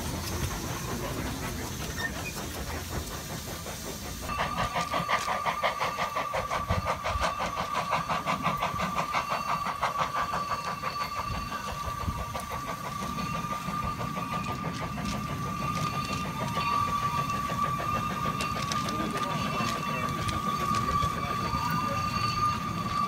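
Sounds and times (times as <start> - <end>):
steam locomotive chuffing: 0.0 - 23.0
steady high tone: 9.1 - 23.0.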